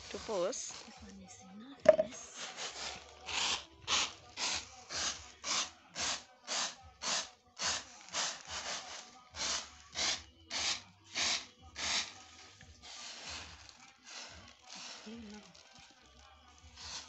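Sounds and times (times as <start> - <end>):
grain rattling in a basket tray: 11.8 - 17.0.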